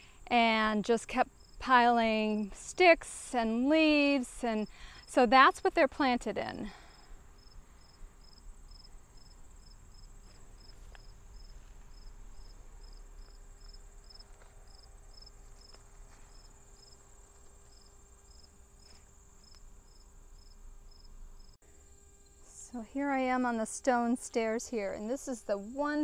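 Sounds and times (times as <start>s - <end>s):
insect chirping: 1.2s - 1.6s, 6.9s - 22.5s
insect high-pitched trill: 1.2s - 1.6s, 6.9s - 23.6s.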